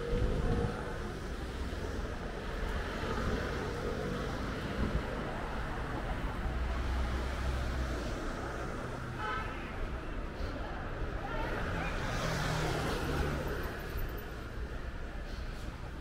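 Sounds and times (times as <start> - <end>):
hum of passing vehicles: 11.5 - 15.2.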